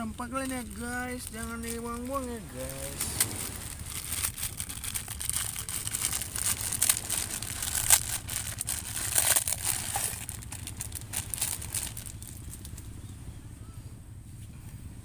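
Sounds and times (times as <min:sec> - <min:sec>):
plastic packet crinkling: 0:00.3 - 0:12.8.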